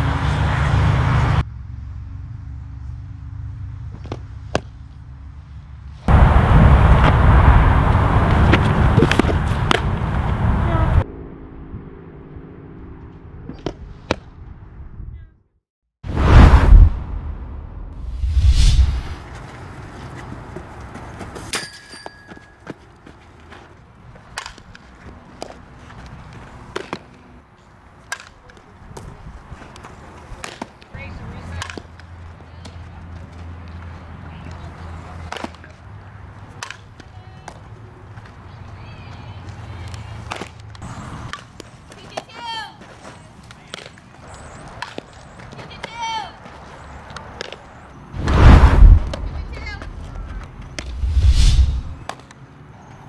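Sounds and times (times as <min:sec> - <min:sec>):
low outdoor hum: 0:00.0 - 0:15.3, 0:46.4 - 0:52.8
wind buffeting microphone: 0:48.2 - 0:52.0.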